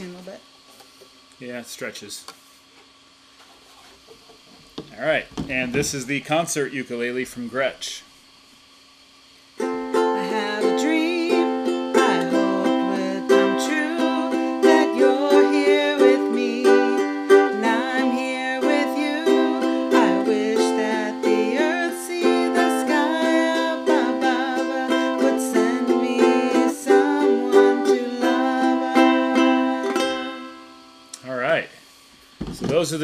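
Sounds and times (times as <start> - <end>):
ukulele strummed: 9.6 - 31.1
woman singing: 10.0 - 30.7.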